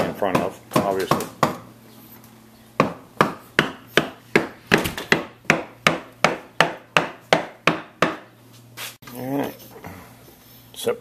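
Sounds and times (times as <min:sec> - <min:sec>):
hammering: 0:02.8 - 0:08.3.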